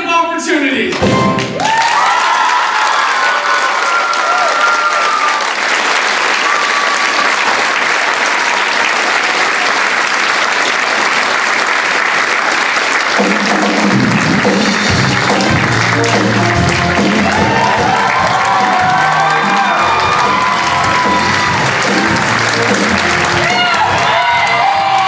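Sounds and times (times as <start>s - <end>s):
pit orchestra playing: 0.9s - 1.7s, 13.2s - 25.0s
audience applauding: 0.9s - 25.0s.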